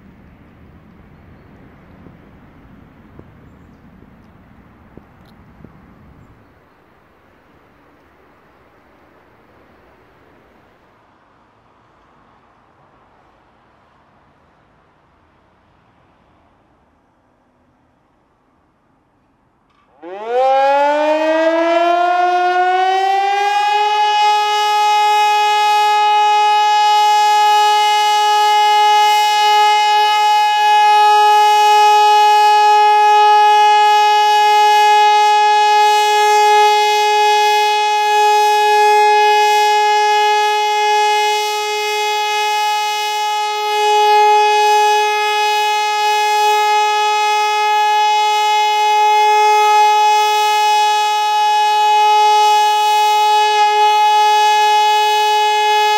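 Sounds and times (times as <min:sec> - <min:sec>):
siren long steady tone: 0:19.9 - 0:55.9.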